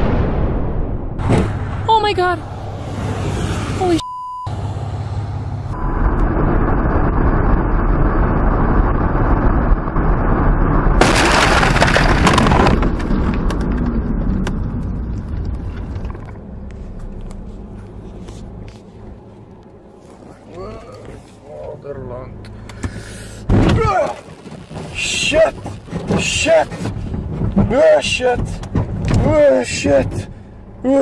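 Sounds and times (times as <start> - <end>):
car rushing at speed: 1.2 - 19.2
windshield crash and shatter: 11.0 - 13.9, 23.5 - 30.3.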